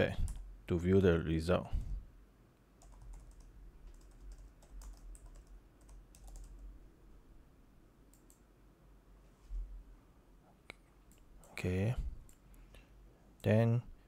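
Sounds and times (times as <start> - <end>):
typing on a keyboard: 2.8 - 6.6.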